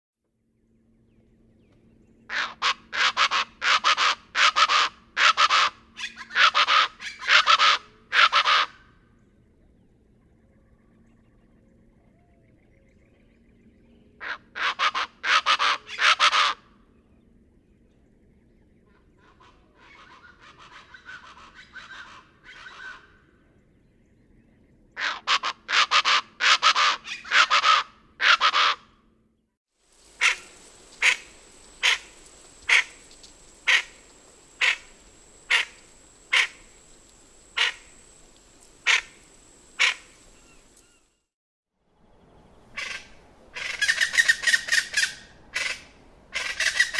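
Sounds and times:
birds giving harsh raucous calls: 2.3 - 8.9, 30.0 - 41.1, 42.7 - 46.9.

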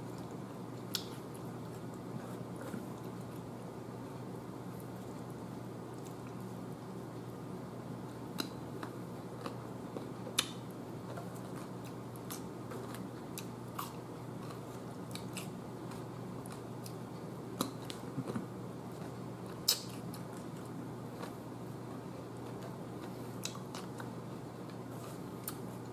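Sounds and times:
steady low hum: 0.0 - 25.9
crisp chewing and crunching: 8.3 - 25.7.

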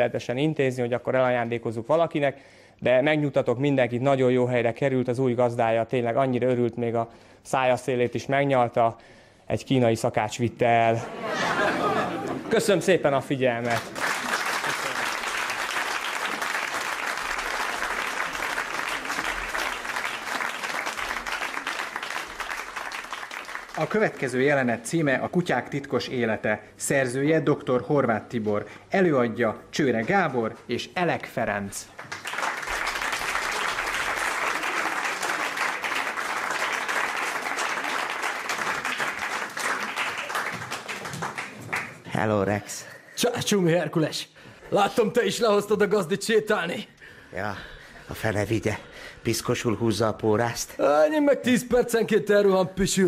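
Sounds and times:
audience applauding: 13.5 - 24.7, 31.9 - 42.1.

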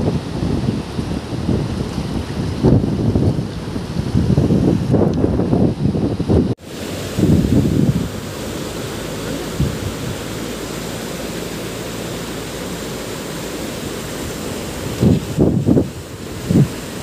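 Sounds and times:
river rapids rushing: 6.6 - 17.0.

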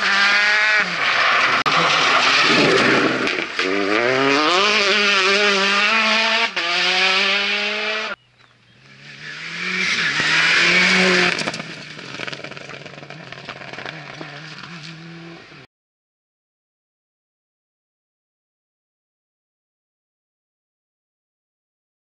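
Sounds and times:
rally car passing at full throttle: 0.0 - 15.6
rally car engine revving: 0.0 - 15.7.

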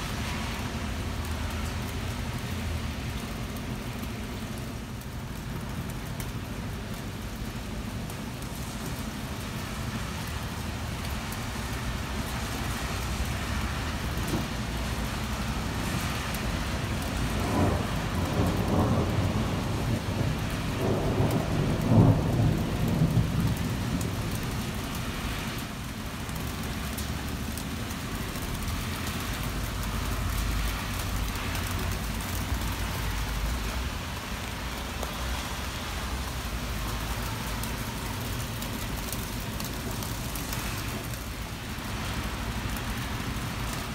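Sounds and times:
heavy rain falling: 0.0 - 43.9
thunder rolling: 17.3 - 24.8.

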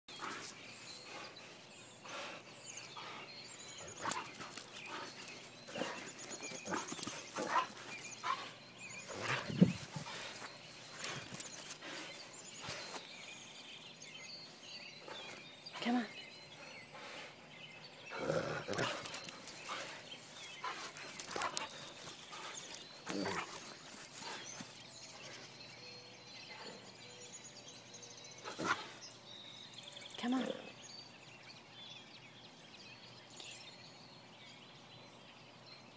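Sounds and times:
scuffling and jostling: 3.9 - 13.4, 18.7 - 25.8.

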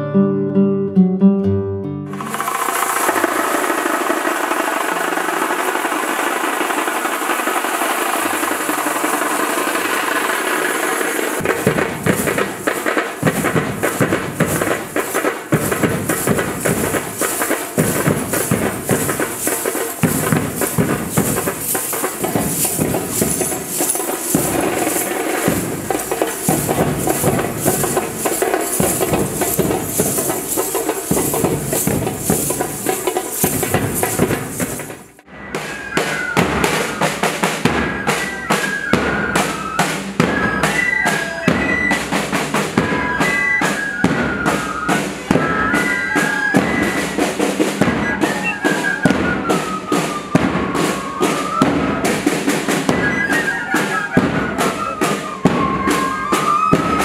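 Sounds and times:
soft folk music: 0.0 - 3.6
jingling lezim: 2.2 - 35.2
dhol drum beats: 2.2 - 57.0.

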